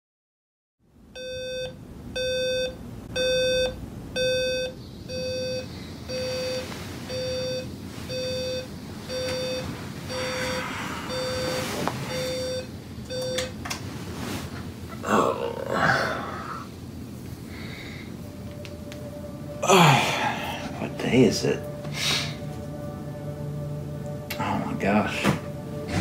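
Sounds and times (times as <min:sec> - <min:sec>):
alarm clock beeping: 0:01.2 - 0:13.5
blanket rustling: 0:06.1 - 0:12.7, 0:13.8 - 0:16.6.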